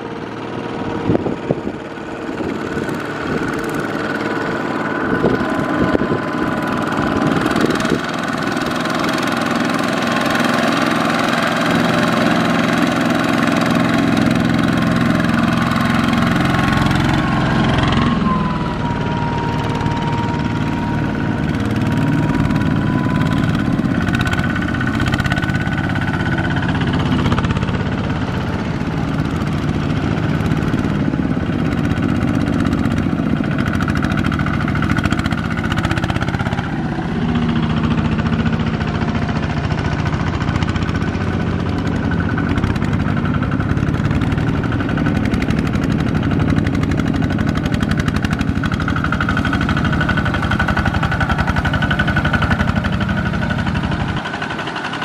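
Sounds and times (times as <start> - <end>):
diesel tractor engines running: 0.0 - 55.0.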